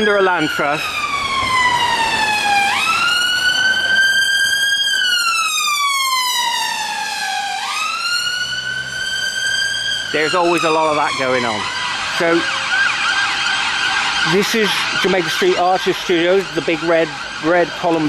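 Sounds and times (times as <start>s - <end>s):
emergency siren wailing: 0.0s - 18.0s.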